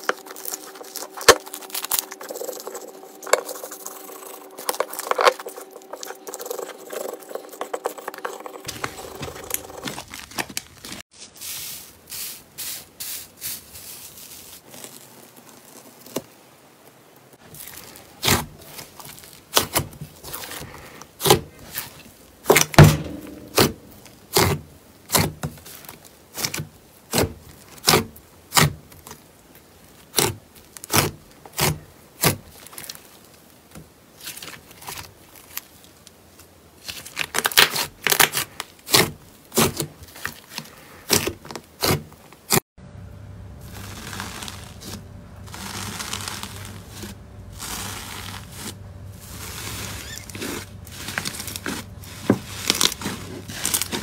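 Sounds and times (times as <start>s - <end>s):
soft rubbing of slime: 0.0s - 16.8s, 43.6s - 54.0s.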